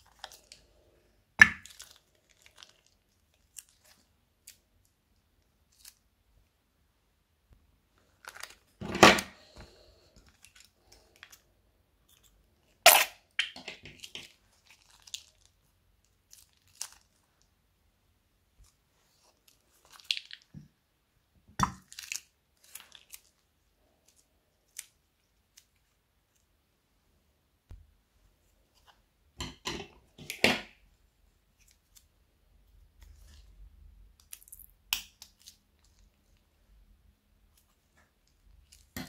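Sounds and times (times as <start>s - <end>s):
plastic bag crinkling: 8.0s - 8.8s, 14.0s - 17.4s
glue crackling and popping: 18.6s - 20.8s, 32.8s - 36.5s.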